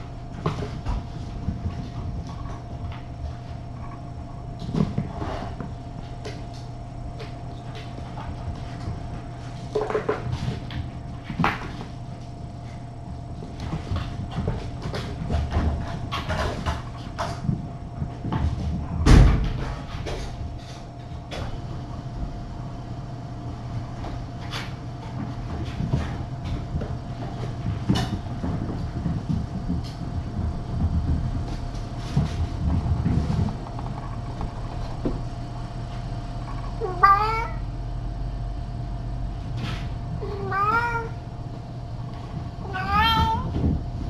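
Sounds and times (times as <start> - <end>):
paws and toys knocking and rustling: 0.0 - 22.1, 23.4 - 37.6, 39.4 - 44.0
steady low hum: 0.0 - 44.0.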